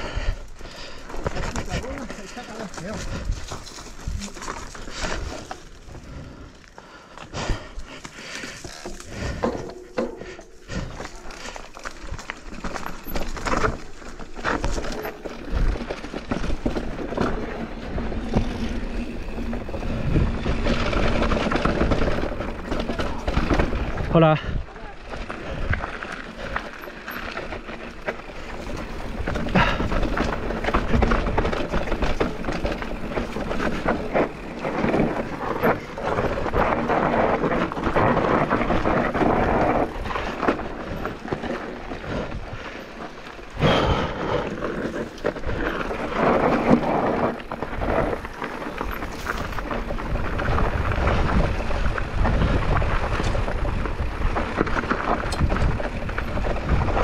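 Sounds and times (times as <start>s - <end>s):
bike rattling and knocking: 0.0s - 57.0s
bike tyres rolling on dirt: 0.0s - 57.0s
wind buffeting microphone: 16.5s - 42.8s, 43.6s - 57.0s.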